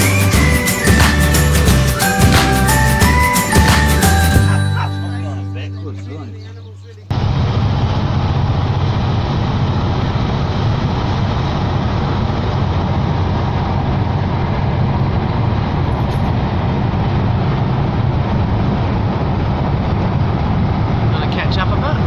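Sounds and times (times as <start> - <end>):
car road and engine rumble: 6.0 - 22.0.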